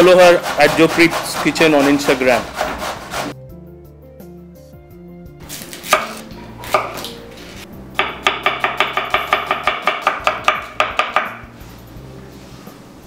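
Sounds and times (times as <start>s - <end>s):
knife slicing onion: 0.0s - 3.4s, 5.4s - 11.4s.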